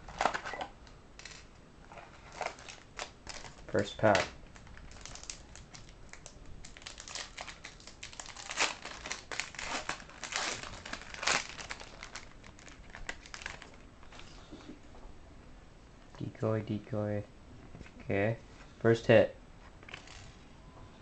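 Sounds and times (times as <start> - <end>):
foil wrapper crinkling and tearing: 1.2 - 14.3.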